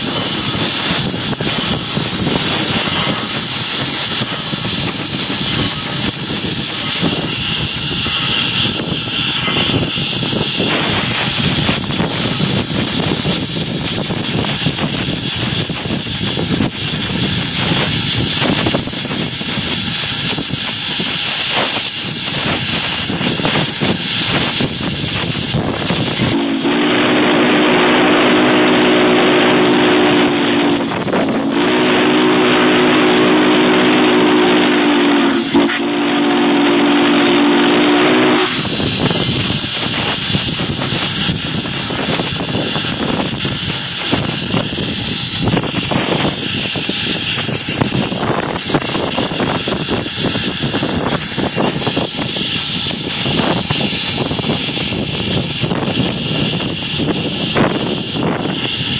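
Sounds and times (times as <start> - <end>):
locomotive running noise: 0.0 - 58.9
steam hiss: 0.0 - 58.9
steam whistle blasts: 0.0 - 58.9.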